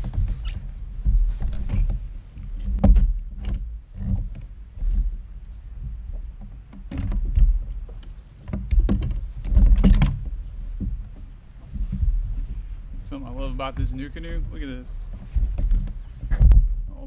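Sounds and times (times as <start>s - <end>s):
knocks on kayak hull: 2.7s - 4.3s, 8.5s - 11.0s.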